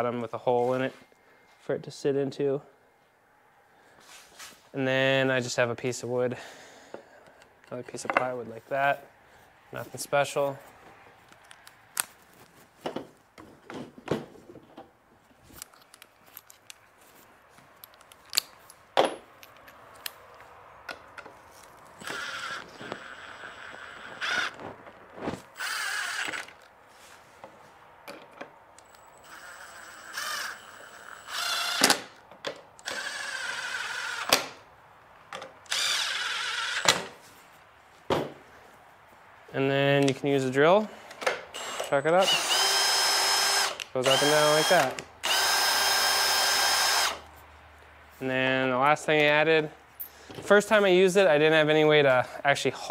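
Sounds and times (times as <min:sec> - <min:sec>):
cordless drill driving screws: 0:22.0 - 0:24.6, 0:25.5 - 0:26.6, 0:28.8 - 0:32.2, 0:32.8 - 0:34.6, 0:35.7 - 0:37.0, 0:41.5 - 0:47.2.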